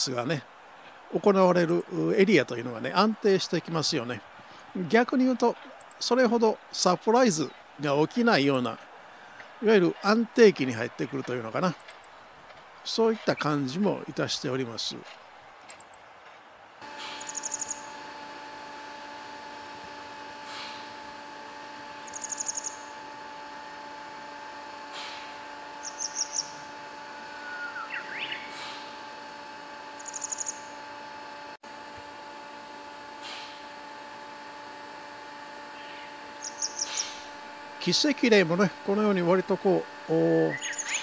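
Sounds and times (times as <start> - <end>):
faint hum: 0.0 - 41.0
bird singing trilled phrases: 17.2 - 17.8, 22.1 - 22.8, 25.8 - 26.6, 27.4 - 28.5, 30.0 - 30.6, 35.8 - 37.2, 40.4 - 41.0
thin sharp bird chirps: 36.4 - 37.2.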